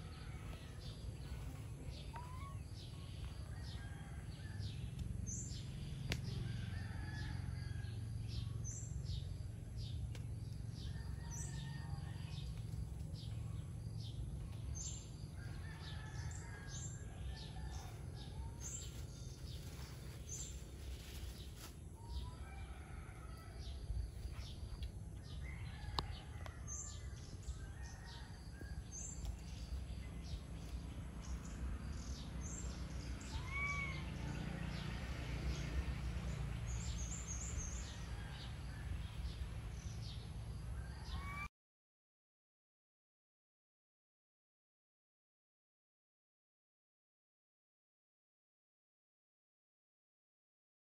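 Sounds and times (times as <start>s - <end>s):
birds chirping: 0.0s - 7.2s
low background rumble: 0.0s - 22.4s.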